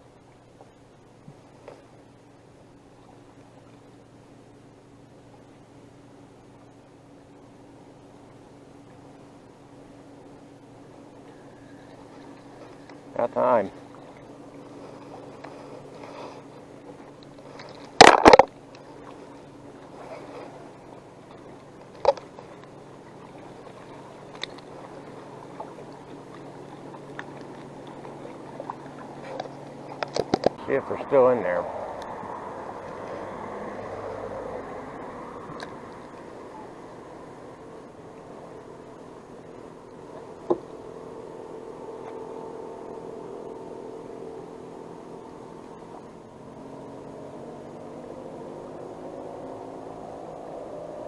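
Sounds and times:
steady low hum: 0.0s - 51.0s
faint clicks: 11.2s - 13.1s, 23.7s - 30.6s
fish splashing out of water: 17.3s - 37.5s.

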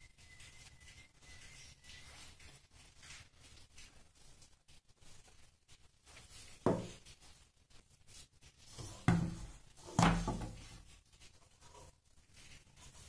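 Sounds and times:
dough and bowl knocking on stone: 6.6s - 7.0s, 8.8s - 10.8s.

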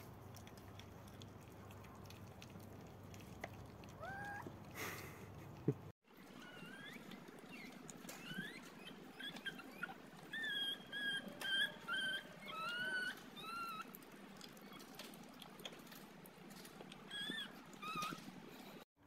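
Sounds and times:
puppy whimpering: 3.8s - 4.6s, 6.2s - 15.1s, 17.0s - 18.8s.

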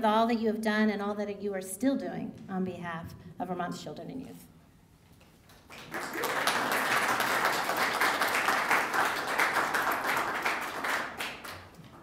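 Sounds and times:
audience applauding: 5.5s - 11.9s.

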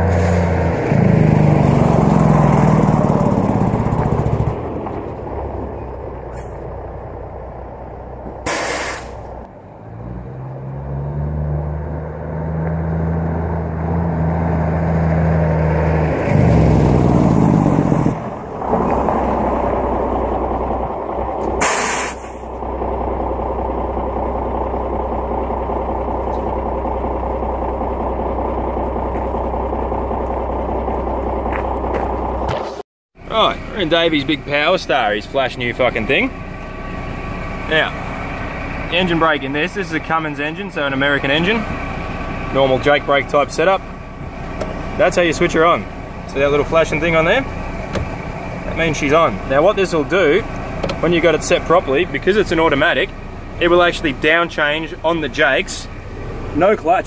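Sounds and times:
truck engine braking: 0.0s - 57.0s
truck engine idling: 1.0s - 10.0s, 18.2s - 57.0s
air brake hisses: 8.4s - 9.3s, 21.6s - 22.5s.

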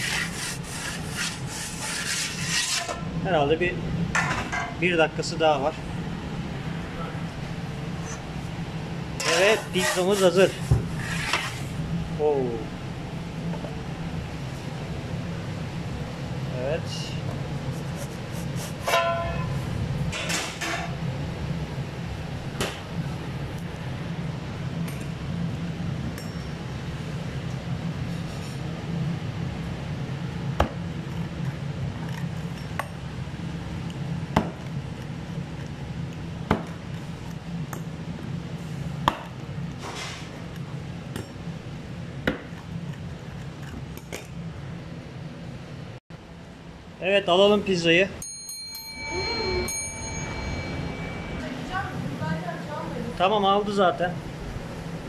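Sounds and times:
pizza cutter scraping crust: 0.0s - 3.1s, 9.2s - 11.8s, 17.6s - 19.0s
steady low hum: 0.0s - 55.0s.

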